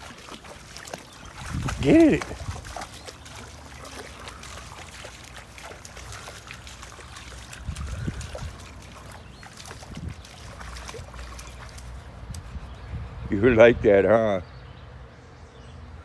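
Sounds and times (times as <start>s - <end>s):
water trickling: 0.0s - 12.5s
dog paws splashing in water: 0.0s - 13.5s.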